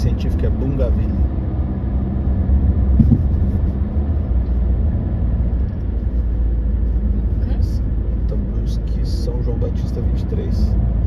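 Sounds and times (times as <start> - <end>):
car engine and tyre rumble: 0.0 - 11.0
short thump: 3.0 - 3.6.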